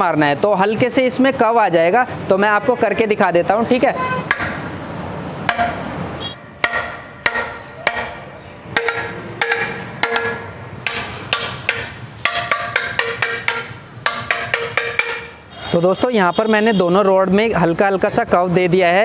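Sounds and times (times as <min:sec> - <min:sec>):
metal tube knocking on concrete: 0:04.3 - 0:04.7, 0:05.5 - 0:05.9, 0:06.6 - 0:15.5.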